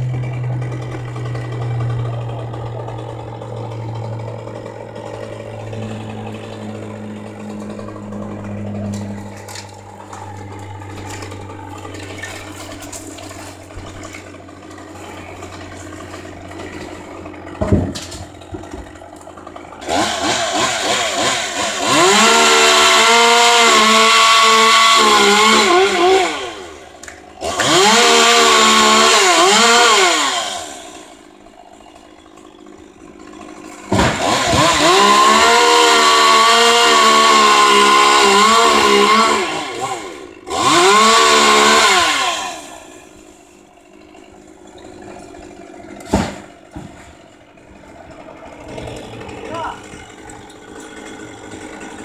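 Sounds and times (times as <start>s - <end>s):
chainsaw cutting branches: 0.0s - 52.0s.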